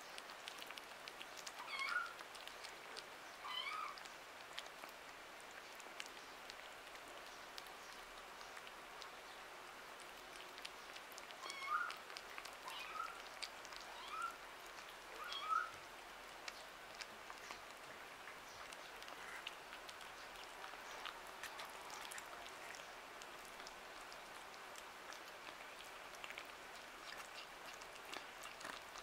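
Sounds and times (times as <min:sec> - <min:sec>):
kittens chewing wet food: 0:00.0 - 0:29.0.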